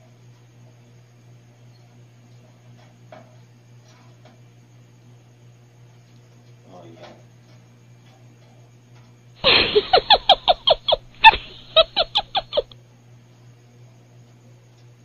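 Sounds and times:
short falling animal-like cries: 10.7s - 12.7s.

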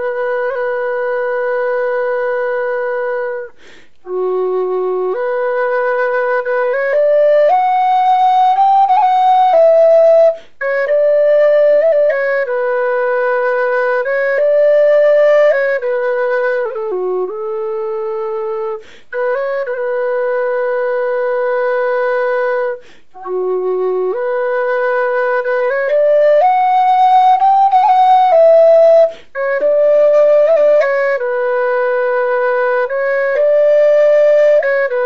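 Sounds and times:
slow flute-like melody: 0.0s - 35.0s.

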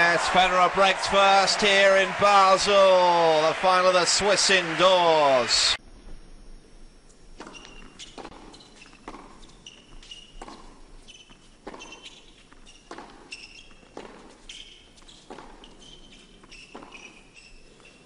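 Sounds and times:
racquets striking tennis ball: 7.4s - 18.0s
shoe squeaks on court: 7.4s - 18.0s.

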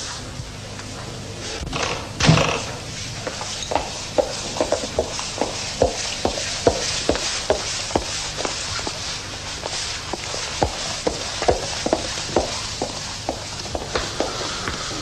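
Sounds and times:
high-heeled shoes clicking: 3.2s - 9.0s, 9.6s - 15.0s.

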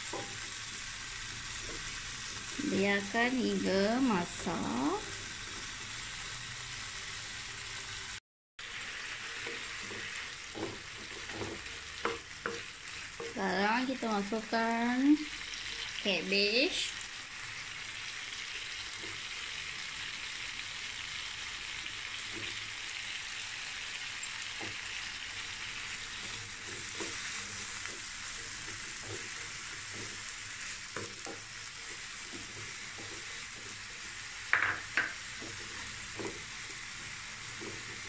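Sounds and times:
food sizzling in oil: 0.0s - 38.0s
wooden spatula scraping a pan: 8.8s - 13.4s, 25.6s - 38.0s
spatula knocks on pan: 34.5s - 35.2s.

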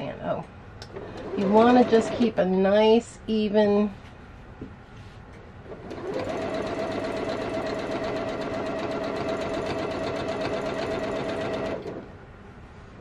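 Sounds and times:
sewing machine running: 1.0s - 2.2s, 5.7s - 12.1s.

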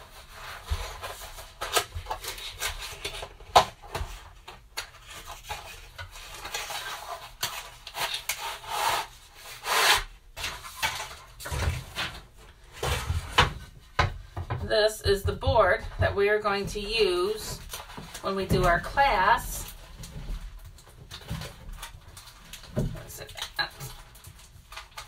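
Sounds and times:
cardboard rubbing and scraping: 5.0s - 12.1s.

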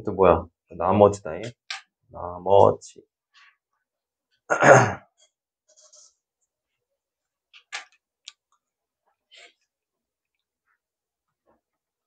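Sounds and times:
person sneezing or coughing: 4.5s - 5.2s.

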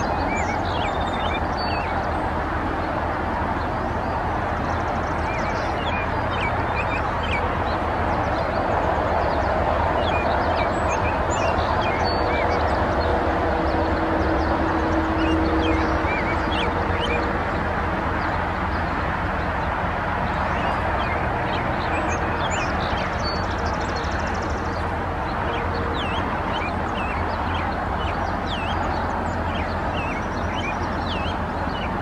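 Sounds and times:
bird chirps and calls: 25.4s - 32.0s.

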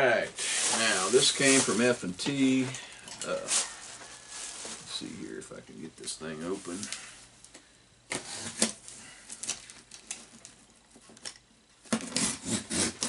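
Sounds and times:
cardboard rustling: 0.3s - 2.7s.

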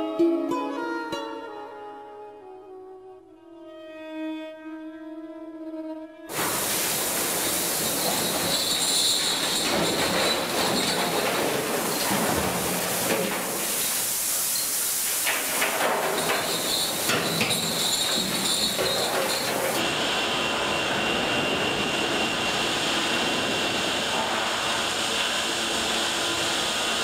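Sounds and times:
metal clanks and squeals: 6.3s - 19.8s
ore rattling down a chute: 6.3s - 19.8s
rail machinery hiss and drone: 6.3s - 27.0s.

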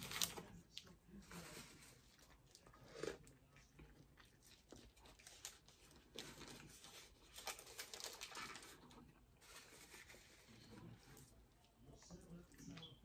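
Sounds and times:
paper wrapper crinkling: 0.0s - 0.5s, 4.6s - 11.2s
chewing a burger: 2.0s - 9.4s.

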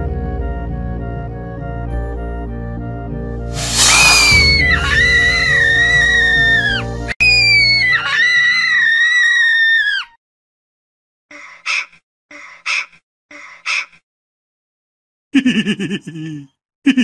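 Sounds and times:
background music: 0.0s - 7.2s
cartoon puppy screaming: 3.7s - 10.2s.

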